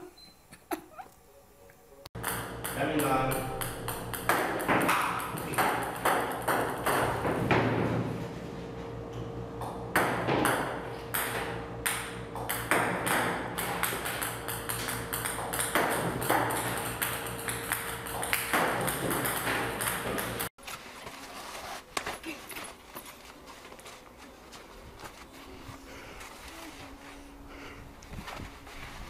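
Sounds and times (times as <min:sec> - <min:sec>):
steady low hum: 0:01.4 - 0:29.0
ping-pong balls bouncing on table: 0:02.2 - 0:07.5, 0:09.9 - 0:20.5.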